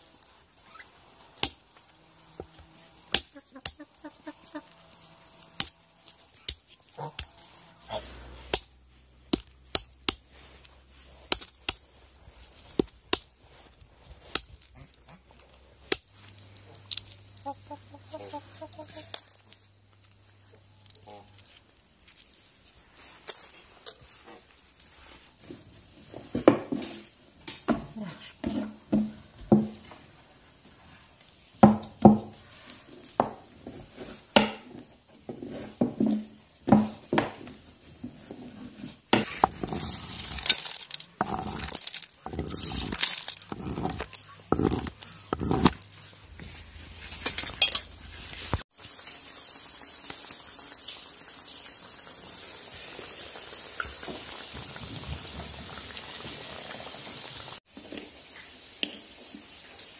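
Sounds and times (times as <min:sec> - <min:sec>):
almonds cracking: 0:14.2 - 0:22.5, 0:39.4 - 0:46.2
dough sizzling in hot oil: 0:48.4 - 0:59.9.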